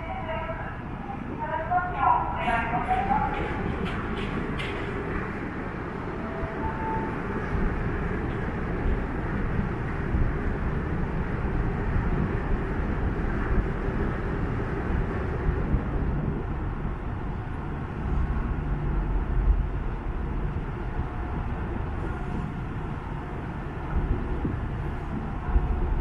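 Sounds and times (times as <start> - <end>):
ferry engines rumbling: 0.0 - 26.0.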